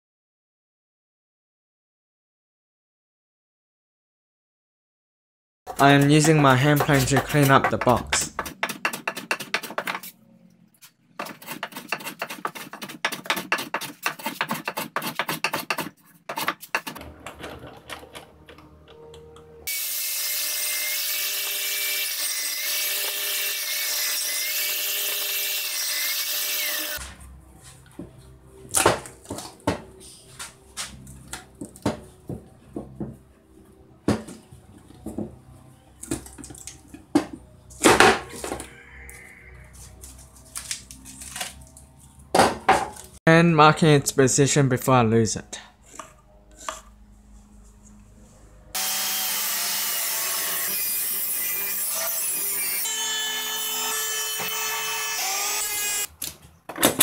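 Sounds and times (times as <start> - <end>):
hand plane scraping wood: 5.7 - 10.1, 11.2 - 17.8, 45.8 - 47.0
power tool whir: 48.7 - 56.1.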